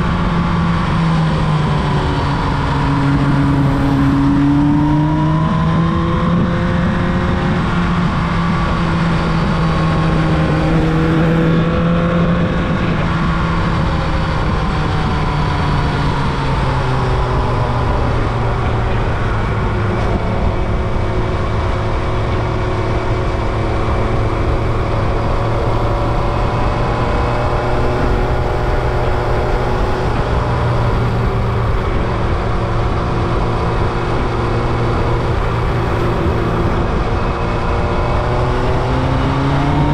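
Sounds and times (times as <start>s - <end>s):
motorcycle engine running: 0.0s - 39.9s
rushing noise: 16.2s - 39.9s.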